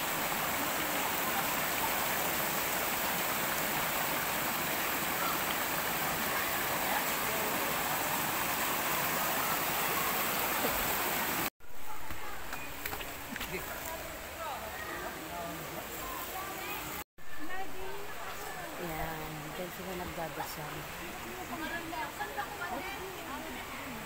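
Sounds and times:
river rushing over boulders: 0.0 - 17.0.

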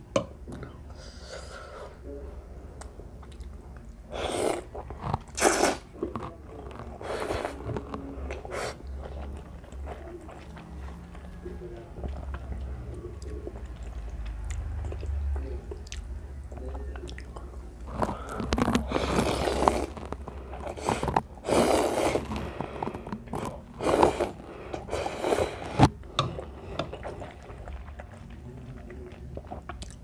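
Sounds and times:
chewing: 2.8 - 30.0
noodles slurped: 4.1 - 10.7, 17.8 - 30.0.

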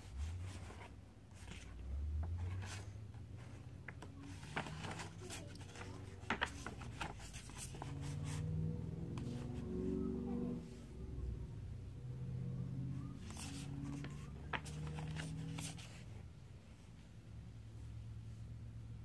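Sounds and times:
book pages turning: 0.0 - 10.1, 13.0 - 16.2.

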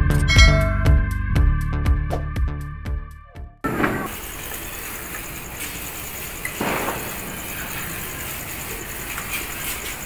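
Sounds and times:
firecracker powder hissing: 3.7 - 10.0
sparks fizzing and crackling: 3.7 - 10.0.

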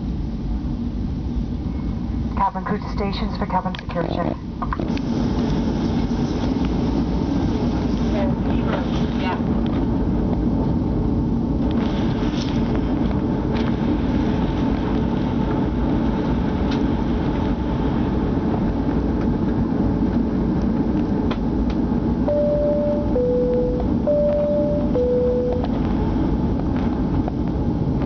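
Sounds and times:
airliner cabin rumble: 0.0 - 28.0
two-note alternating tone: 22.3 - 25.9.

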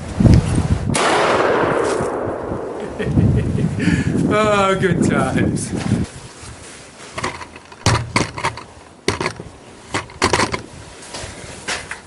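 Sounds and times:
shotgun action metallic clicks: 7.2 - 10.7.

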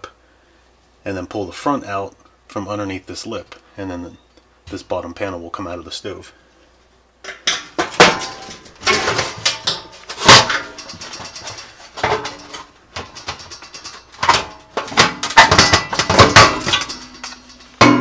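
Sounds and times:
sheet metal clanking and scraping: 7.3 - 18.0.

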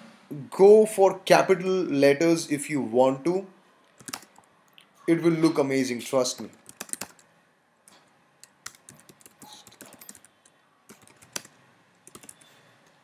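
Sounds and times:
computer keyboard typing: 4.0 - 4.5, 6.4 - 7.3, 8.4 - 12.5.

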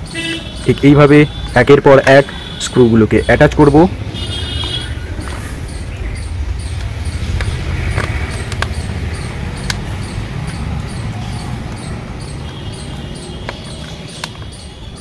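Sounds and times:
steady low rumble: 3.9 - 13.2.

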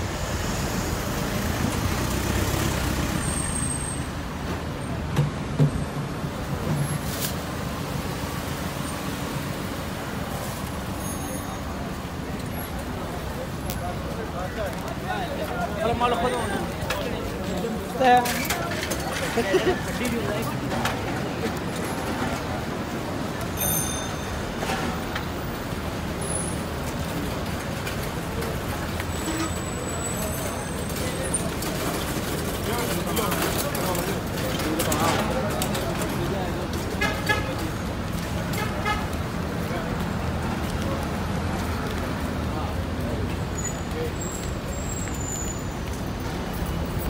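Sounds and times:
cars driving past: 0.0 - 13.4
traffic rumble: 0.0 - 47.0
high-pitched ring: 23.6 - 24.4.

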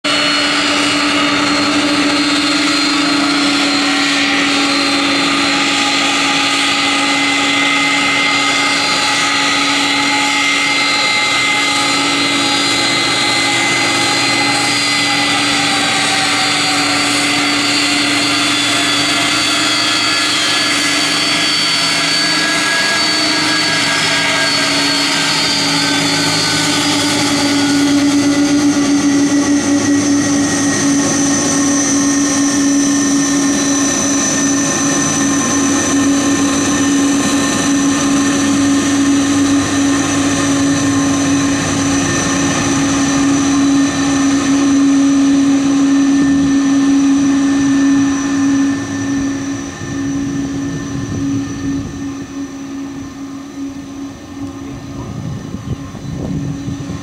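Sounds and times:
jet engines whining: 0.0 - 57.0.

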